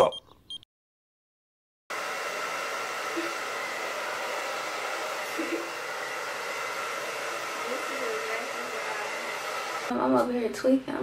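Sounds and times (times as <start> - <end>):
hair dryer running: 1.9 - 10.3.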